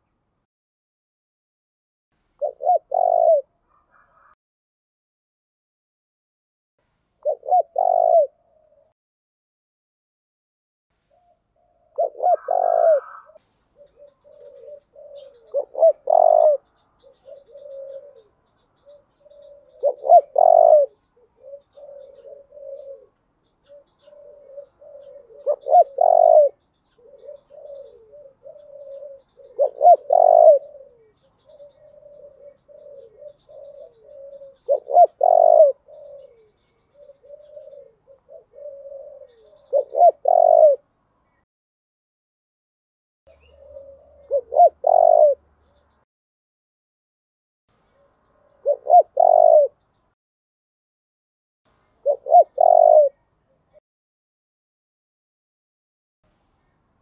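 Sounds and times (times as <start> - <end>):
dove cooing: 2.4 - 4.4, 7.2 - 9.0, 11.1 - 40.9, 43.3 - 45.5, 47.9 - 49.8, 52.0 - 53.8.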